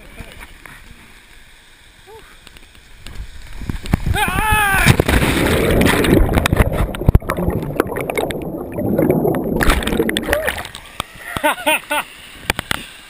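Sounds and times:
underwater bubbling rush: 5.0s - 10.8s
underwater knocks: 5.7s - 10.6s.

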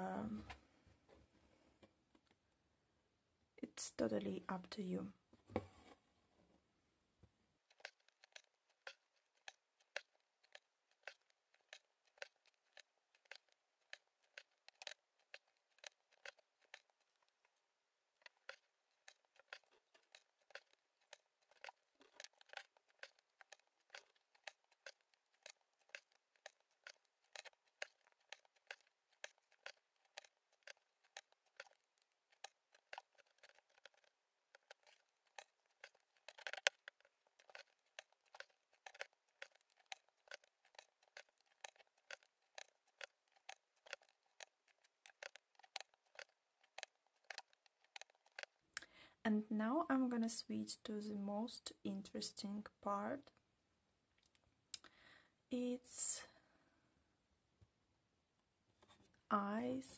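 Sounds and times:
needle piercing fabric ticks: 7.6s - 17.5s, 18.2s - 48.9s.

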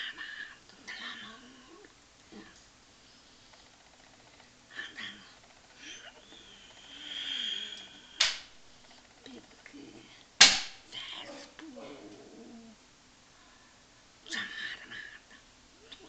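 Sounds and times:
sharp smacks: 8.2s - 8.5s, 10.4s - 10.9s.

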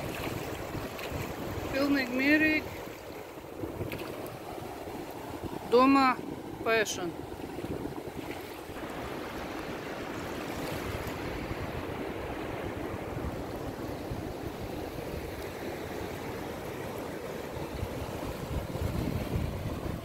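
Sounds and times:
sea surf on a beach: 0.0s - 20.0s
wind rumble on microphone: 0.0s - 20.0s.

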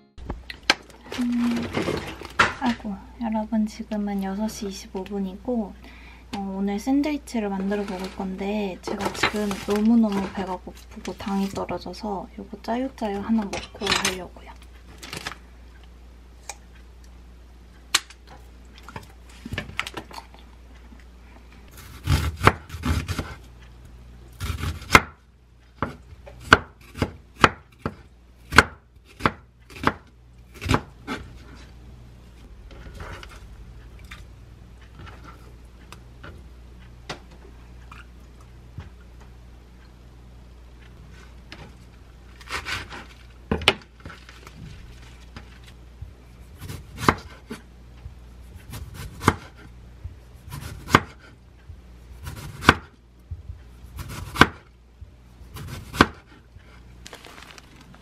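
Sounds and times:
lettuce leaves rustling: 57.0s - 58.0s.

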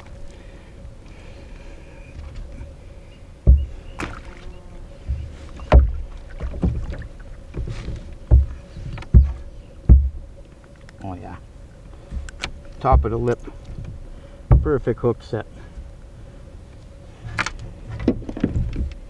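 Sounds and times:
knocks against canoe hull: 3.4s - 4.3s, 5.0s - 10.2s, 12.1s - 14.8s.

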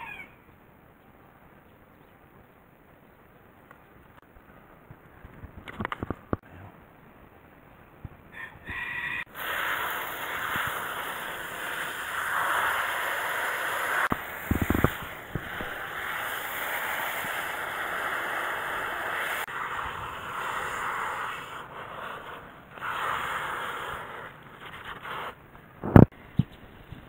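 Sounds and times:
hose nozzle spraying water: 9.3s - 26.0s.

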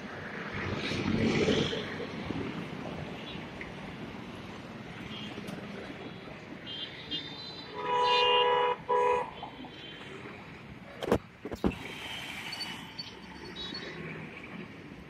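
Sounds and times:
passing cars: 0.0s - 15.0s
vehicle horn honking: 6.7s - 9.2s.

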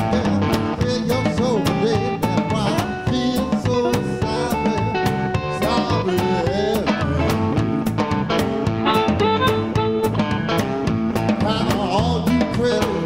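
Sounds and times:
person singing: 0.0s - 7.8s, 11.3s - 13.0s
electric guitar with bent notes: 0.0s - 13.0s
steady drum beat: 0.0s - 13.0s.

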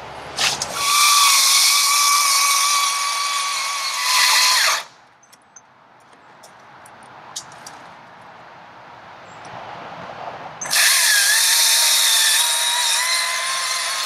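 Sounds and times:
electric chainsaw cutting log: 0.4s - 4.9s, 10.6s - 14.0s.

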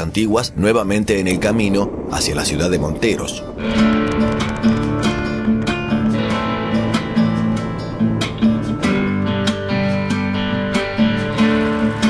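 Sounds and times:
strummed guitar music: 3.4s - 12.0s.

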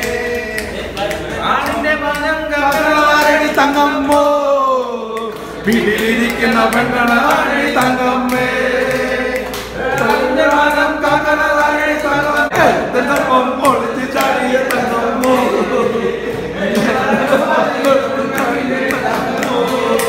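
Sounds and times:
men singing together: 0.0s - 20.0s.

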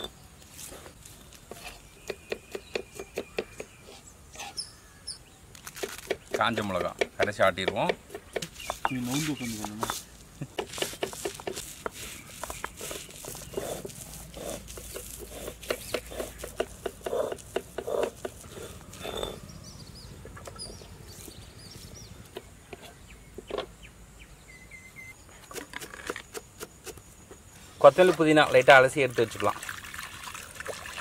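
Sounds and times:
knife chopping on wooden block: 1.5s - 3.8s, 5.8s - 10.0s, 10.6s - 19.3s
stone roller grinding on slab: 5.7s - 19.5s.

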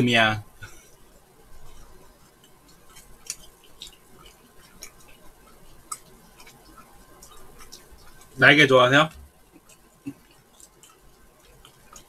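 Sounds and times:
faint chewing: 0.6s - 12.0s
mouth clicks and smacks: 2.4s - 8.4s, 9.1s - 12.0s.

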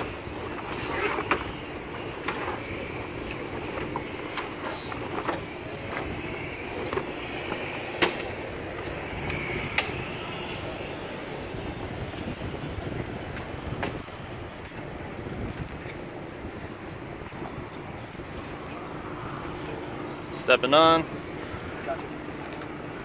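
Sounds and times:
sailcloth rustling: 0.0s - 8.5s.

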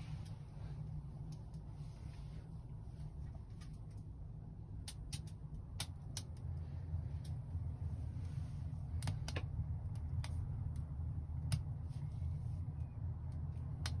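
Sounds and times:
low fire rumble: 0.0s - 14.0s
wood fire crackling: 0.0s - 14.0s.

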